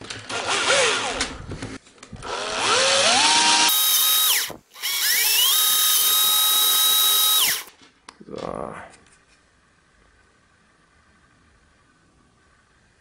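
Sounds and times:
cordless drill boring plastic: 2.2 - 7.7.

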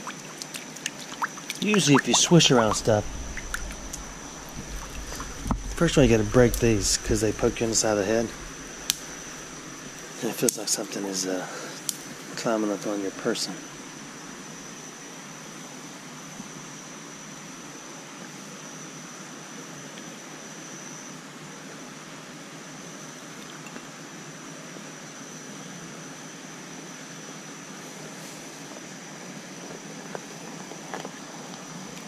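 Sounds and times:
creek running over rocks: 0.0 - 11.2
thin high steady tone: 1.5 - 10.4.

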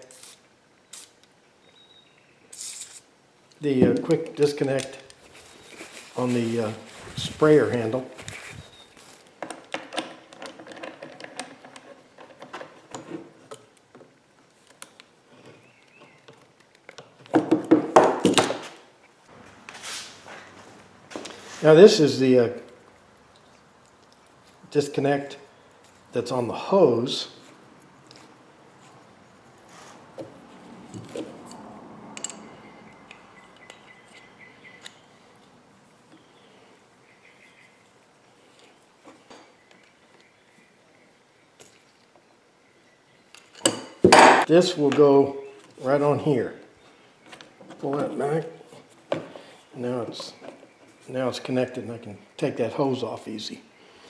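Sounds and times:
metal tools clicking and clinking: 32.2 - 32.5.

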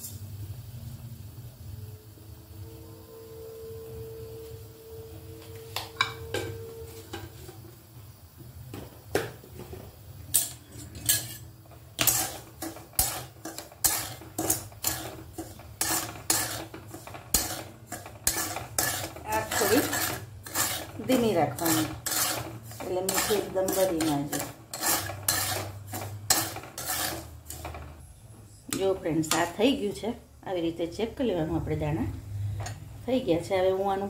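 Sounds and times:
metal spoon stirring salt in wok: 10.3 - 28.0, 28.7 - 29.6.

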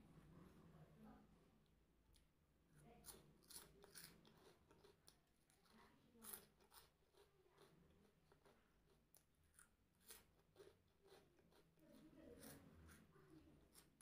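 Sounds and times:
crunchy snacks being chewed: 3.0 - 11.8.

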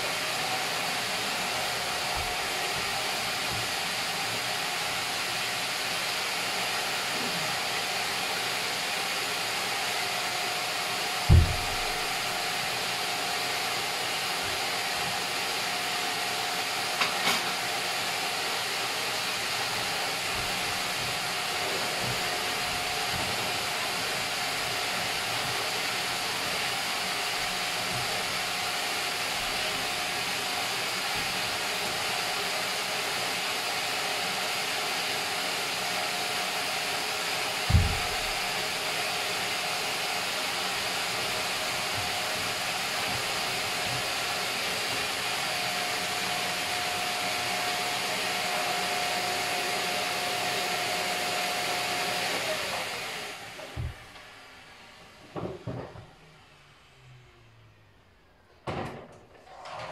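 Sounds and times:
vacuum cleaner running: 0.0 - 59.9
cushion thump: 11.3 - 12.0, 37.7 - 38.4.

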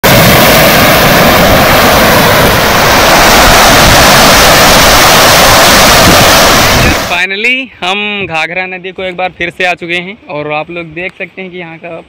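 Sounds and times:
river floodwater rushing: 0.1 - 7.2.

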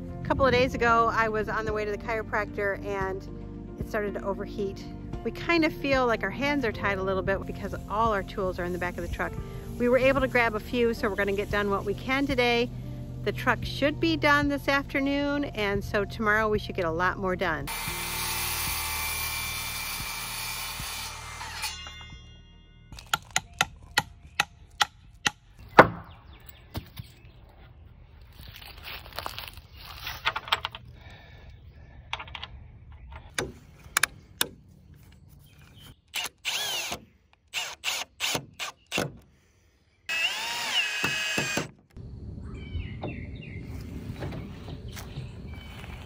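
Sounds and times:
cordless drill driving screws: 36.1 - 39.2, 40.1 - 41.8.

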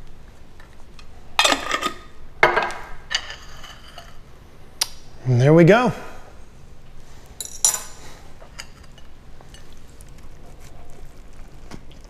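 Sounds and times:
biting into sandwich: 9.6 - 12.0.

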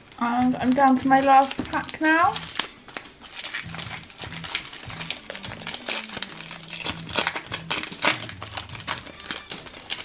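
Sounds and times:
foil wrapper crinkling: 0.0 - 10.0
background music: 0.1 - 10.0.

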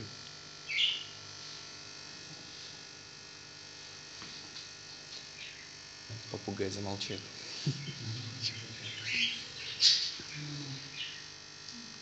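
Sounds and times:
low room hum: 0.0 - 12.0
parrot chirping: 0.7 - 1.1, 8.5 - 10.2.

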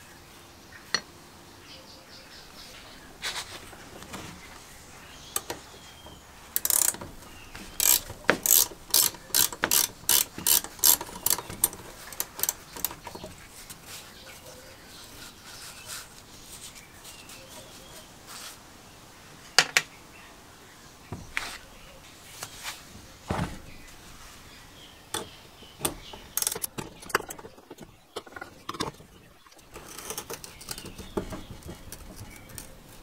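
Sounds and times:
ratcheting wrench clicking: 5.4 - 5.8, 6.5 - 13.2, 25.1 - 29.0, 29.7 - 33.0.

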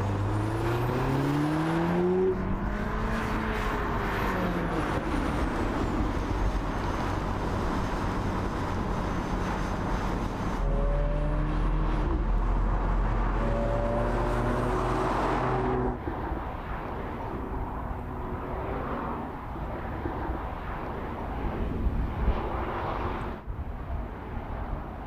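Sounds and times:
distant engine and road noise: 0.0 - 25.0
car engine accelerating: 10.6 - 16.0.

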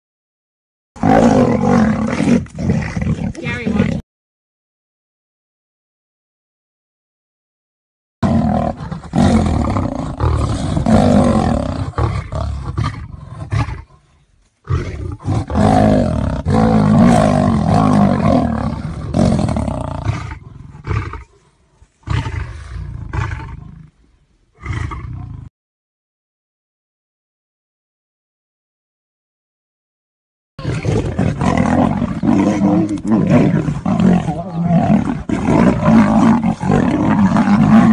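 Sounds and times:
big cat growling and roaring: 1.0 - 4.0, 8.2 - 14.1, 14.7 - 24.0, 24.6 - 25.5, 30.6 - 37.9.

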